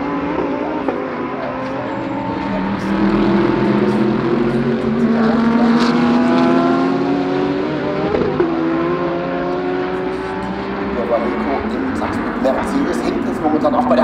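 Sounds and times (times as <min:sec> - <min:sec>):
race car engines: 0:00.0 - 0:14.0.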